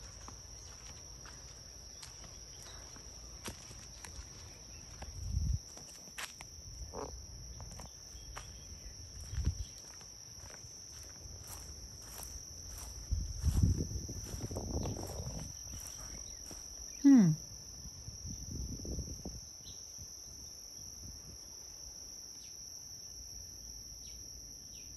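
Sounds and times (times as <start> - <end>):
insect trilling: 0.0 - 19.9.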